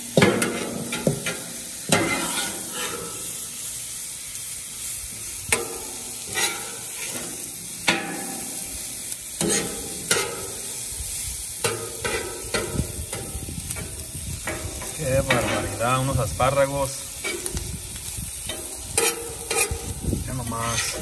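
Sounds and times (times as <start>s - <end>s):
vegetables sizzling on griddle: 0.0s - 21.0s
metal spatula scraping and clacking: 0.2s - 3.3s, 5.5s - 8.5s, 9.4s - 10.6s, 11.6s - 15.8s, 17.2s - 17.6s, 18.4s - 19.9s, 20.5s - 21.0s.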